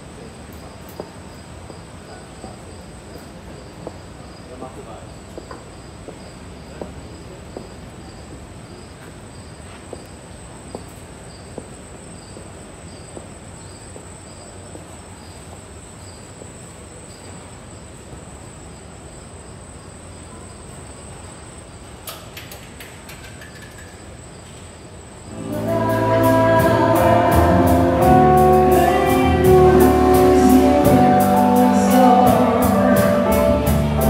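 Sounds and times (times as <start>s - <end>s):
crickets chirping: 0.0s - 34.0s
faint clicks: 22.0s - 24.6s
low steady rumble: 25.3s - 34.0s.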